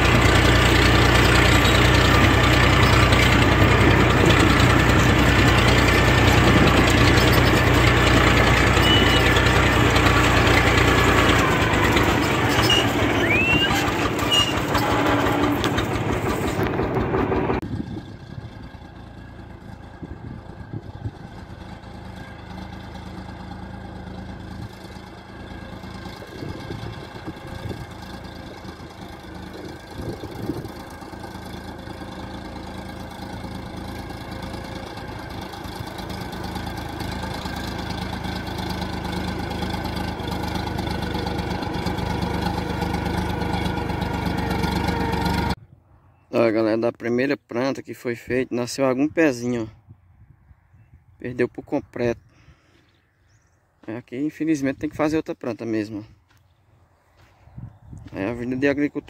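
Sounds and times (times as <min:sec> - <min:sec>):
tractor engine running: 0:00.0 - 0:45.6.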